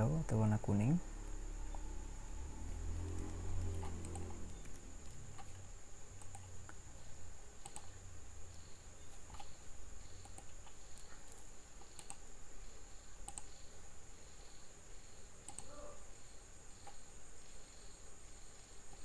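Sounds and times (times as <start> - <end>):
steady high whine: 0.0 - 19.0
computer mouse clicks: 3.0 - 6.8, 7.6 - 12.3, 13.2 - 13.6, 15.4 - 15.9, 16.8 - 17.1
keyboard clicks: 3.1 - 5.6, 6.2 - 6.8, 7.6 - 8.0, 9.1 - 9.6, 10.2 - 12.2, 13.2 - 13.6, 15.4 - 15.8
faint high chirp: 4.2 - 5.2.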